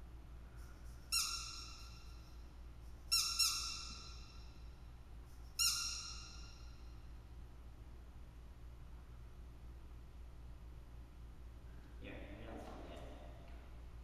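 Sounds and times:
squeaky dog toy squeaking: 0:01.1 - 0:02.2, 0:03.1 - 0:04.4, 0:05.6 - 0:06.6.

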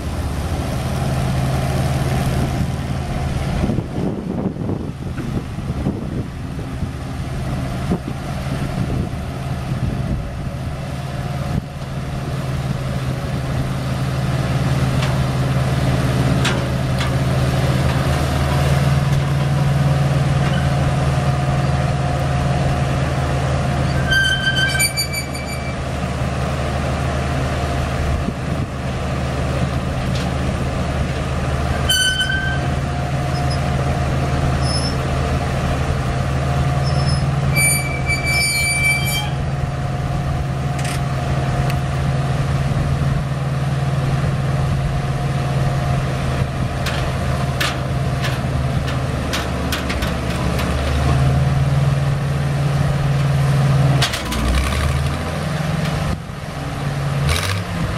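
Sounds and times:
crane engine running: 0:00.0 - 0:57.9
short high squeals: 0:23.8 - 0:25.9, 0:31.8 - 0:33.7, 0:34.6 - 0:35.0, 0:36.8 - 0:39.6.

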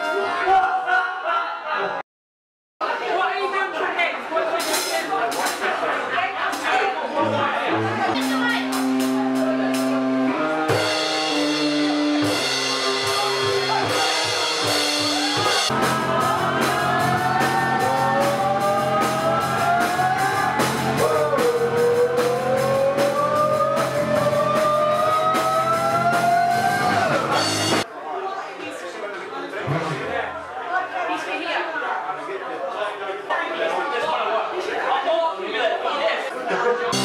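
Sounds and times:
rock band playing: 0:07.1 - 0:27.8
man singing: 0:15.7 - 0:27.0.

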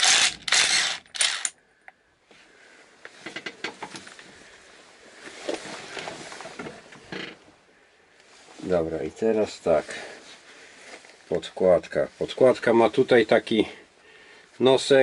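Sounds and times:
impact wrench bursts: 0:00.0 - 0:01.6.

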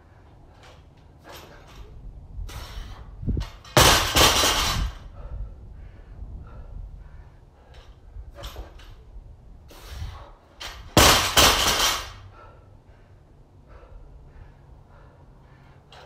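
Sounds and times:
barbell crashing onto rubber mats: 0:03.7 - 0:05.0, 0:10.9 - 0:12.2
weight plates rattling: 0:10.6 - 0:12.2.

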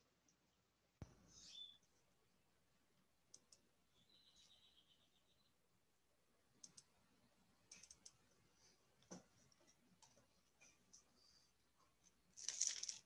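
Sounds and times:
computer mouse clicks: 0:03.3 - 0:03.7, 0:06.6 - 0:06.9, 0:07.7 - 0:08.2.

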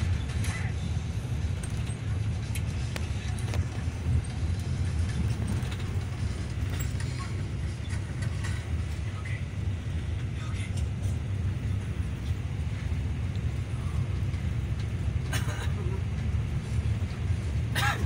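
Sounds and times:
bus engine and road rumble: 0:00.0 - 0:18.0
light clicks and rattles: 0:01.4 - 0:09.1.

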